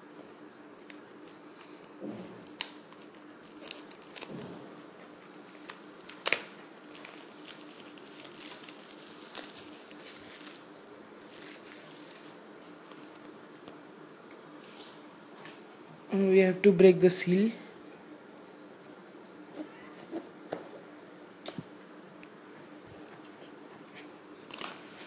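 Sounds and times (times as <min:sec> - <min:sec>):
faint steady hum: 0:00.0 - 0:25.0
plastic wrap crinkling: 0:00.1 - 0:13.7.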